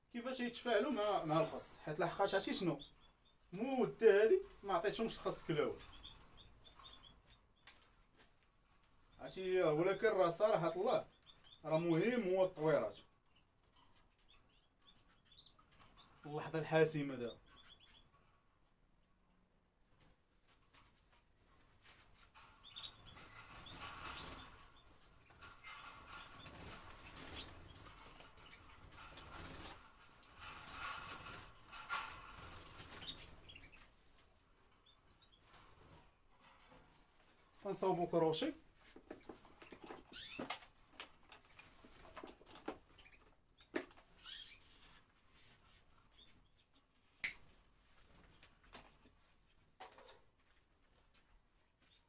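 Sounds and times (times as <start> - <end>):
birds fluttering wings in cages: 0.3 - 2.9, 3.6 - 13.0, 20.0 - 36.2, 37.7 - 49.7.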